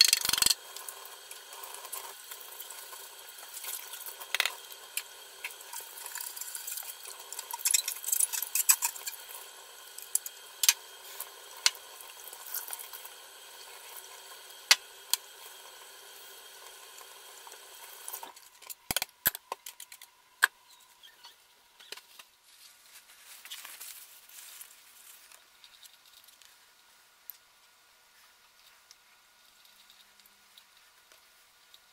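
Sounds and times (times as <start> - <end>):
soft rustling: 22.4 - 25.3.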